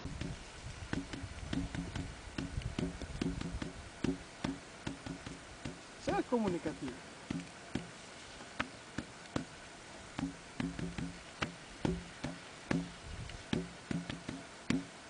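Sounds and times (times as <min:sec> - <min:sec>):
hand knocking on metal post: 0:00.2 - 0:06.6, 0:10.2 - 0:14.9.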